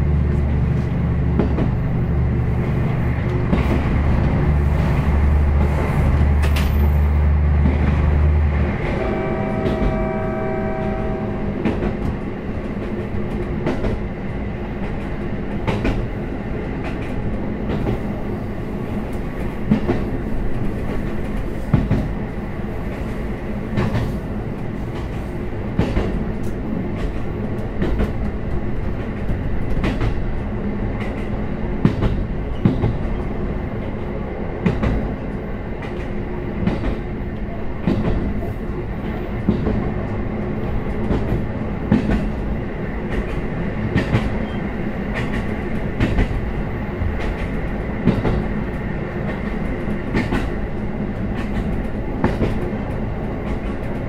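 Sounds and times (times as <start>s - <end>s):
wheels clacking over rail joints: 0.3s - 10.2s.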